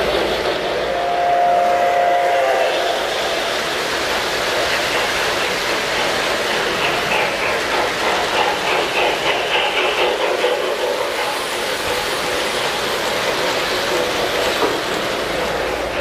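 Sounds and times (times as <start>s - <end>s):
model train clattering on track: 3.6s - 16.0s.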